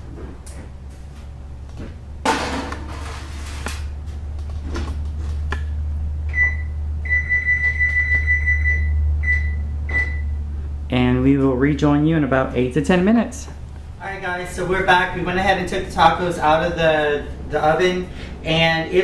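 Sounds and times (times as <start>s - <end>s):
baking dish clattering on rack: 2.3s - 3.3s
high electronic oven beeps: 6.3s - 10.5s.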